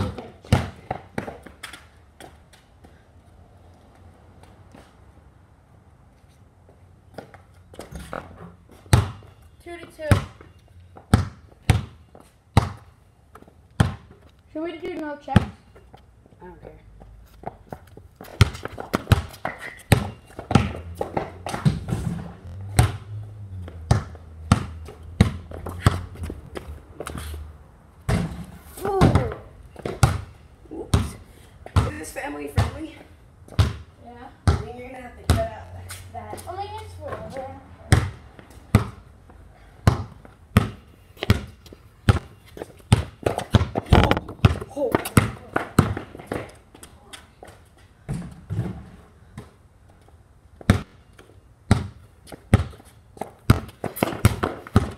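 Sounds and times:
basketball bouncing: 0.0 - 1.5, 8.9 - 9.3, 10.1 - 10.4, 11.0 - 12.9, 13.8 - 14.1, 18.2 - 26.7, 28.1 - 30.3, 30.9 - 32.8, 33.5 - 35.6, 37.9 - 39.0, 39.8 - 42.3, 42.9 - 46.5, 50.6 - 51.0, 51.7 - 54.9.

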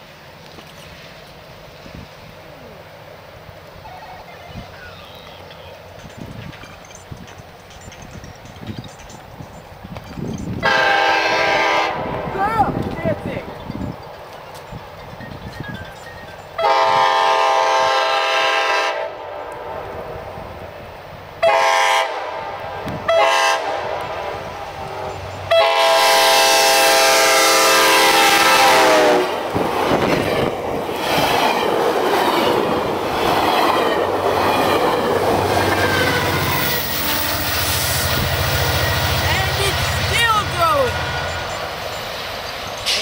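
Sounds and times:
train cars rumbling on rails: 0.0 - 43.0
train horn blasts: 10.6 - 12.3, 16.6 - 19.9, 21.4 - 29.4, 35.6 - 38.2.

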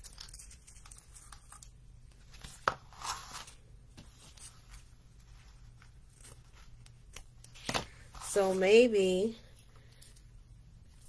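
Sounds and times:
rustling craft materials: 0.0 - 11.0.

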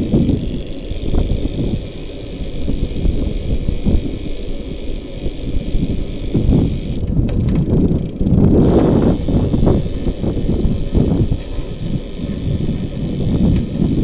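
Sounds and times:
wind buffeting microphone: 0.0 - 14.0.

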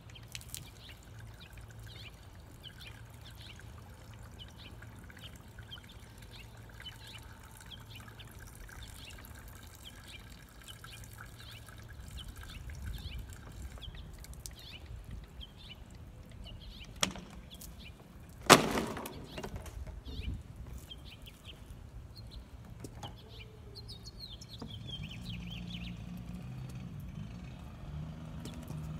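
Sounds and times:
birds chirping: 0.0 - 28.9
blade smacking plastic bottle: 18.5 - 19.6.

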